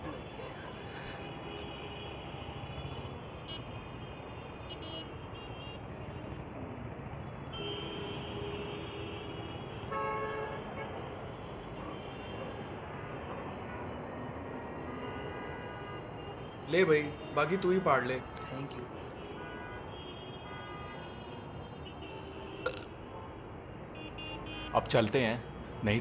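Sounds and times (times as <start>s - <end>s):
street traffic: 0.0s - 26.0s
vehicle horn: 7.5s - 10.9s, 19.2s - 22.8s, 24.0s - 24.8s.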